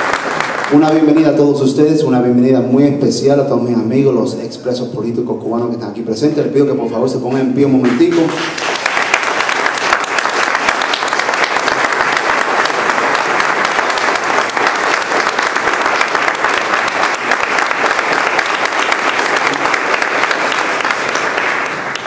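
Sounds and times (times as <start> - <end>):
audience applauding: 0.0 - 1.5, 7.3 - 22.0.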